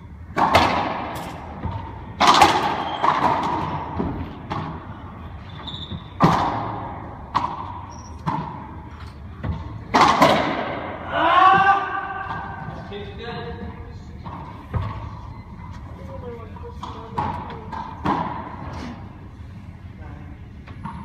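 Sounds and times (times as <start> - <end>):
racquetball cracking off walls: 0.3 - 4.8, 9.5 - 10.9
sneaker squeaks on hardwood: 2.7 - 3.2, 5.4 - 6.2, 7.8 - 8.3.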